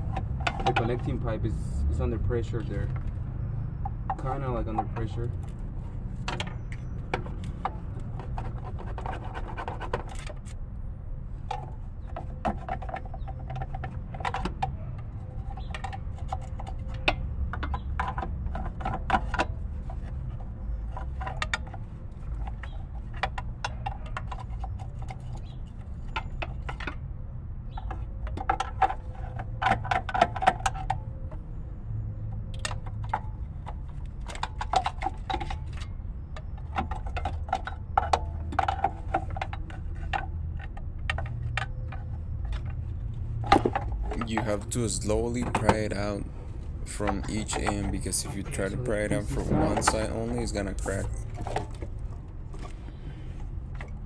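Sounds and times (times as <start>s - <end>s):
tool clicking and scraping metal: 3.8s - 10.6s, 32.5s - 52.8s
low steady rumble: 31.0s - 54.0s.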